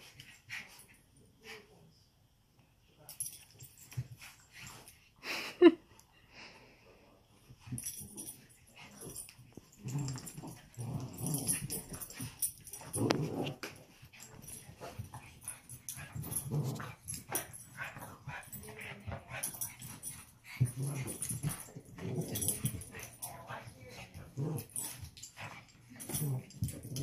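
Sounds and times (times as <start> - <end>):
puppies growling: 9.0 - 18.5, 19.3 - 23.1.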